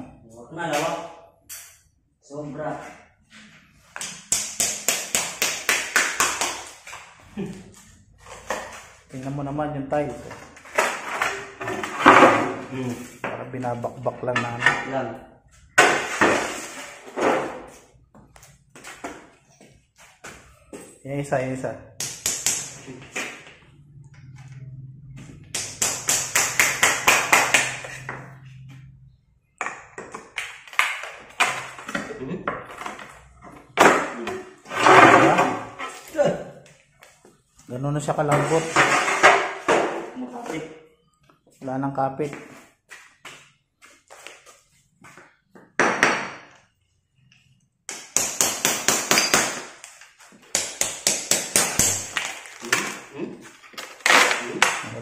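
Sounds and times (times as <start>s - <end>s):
hammer striking chisel on tiles: 4.0s - 6.7s, 22.0s - 22.9s, 25.5s - 28.2s, 47.9s - 52.2s
hammer tapping ceramic tiles: 25.5s - 28.2s, 50.5s - 52.2s.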